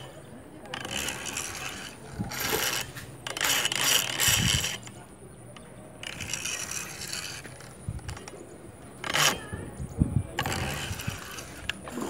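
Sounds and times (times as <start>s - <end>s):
fishing reel ratcheting clicks: 0.7s - 5.0s.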